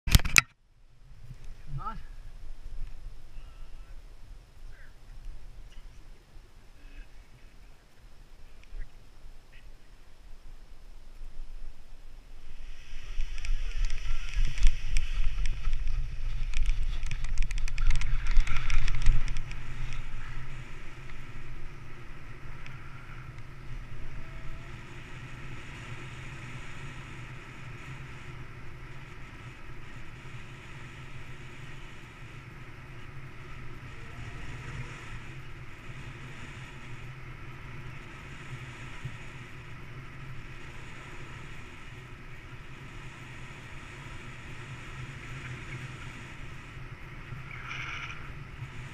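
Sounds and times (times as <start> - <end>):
wind on microphone: 10.4 - 48.9.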